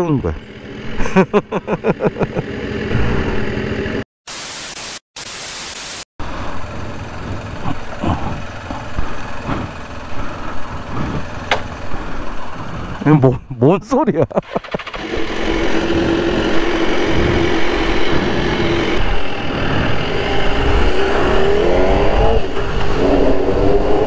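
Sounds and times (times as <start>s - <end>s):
motorcycle engine at low revs: 0.0s - 4.1s, 6.2s - 13.3s, 14.3s - 24.0s
loud even hiss: 4.3s - 6.1s.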